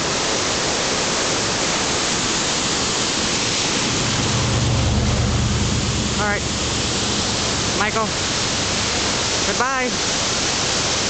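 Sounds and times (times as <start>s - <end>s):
waterfall roaring: 0.0s - 11.0s
vehicle engine hum: 3.3s - 9.5s.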